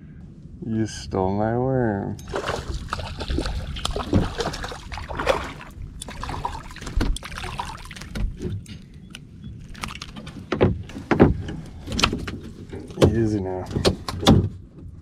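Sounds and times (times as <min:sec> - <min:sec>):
fish splashing at surface: 0:02.3 - 0:08.2
knocks and rattles against kayak hull: 0:02.3 - 0:08.9, 0:09.7 - 0:15.0.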